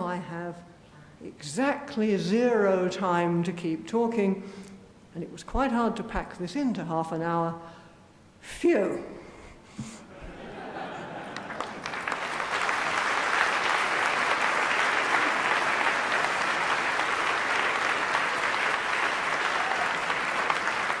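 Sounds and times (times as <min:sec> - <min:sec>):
audience applauding: 0:11.0 - 0:21.0.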